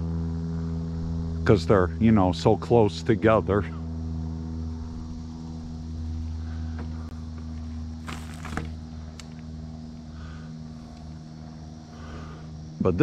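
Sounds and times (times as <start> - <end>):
low machine hum: 0.0 - 13.0
short rustle: 8.0 - 8.8.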